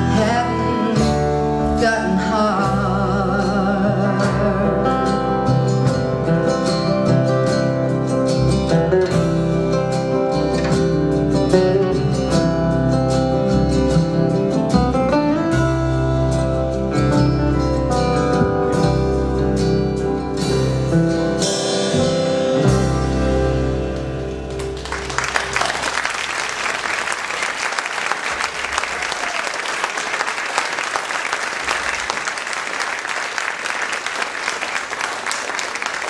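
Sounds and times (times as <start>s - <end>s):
live band with guitar: 0.0s - 36.0s
audience applauding: 24.5s - 36.0s.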